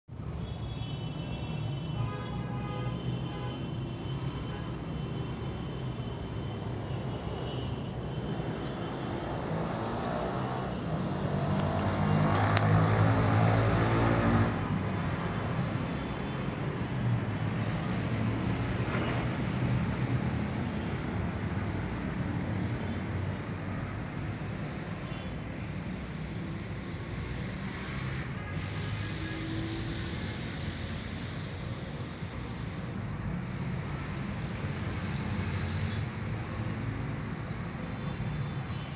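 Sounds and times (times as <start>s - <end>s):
steady traffic noise: 0.0s - 38.9s
vehicle passing: 8.2s - 15.4s.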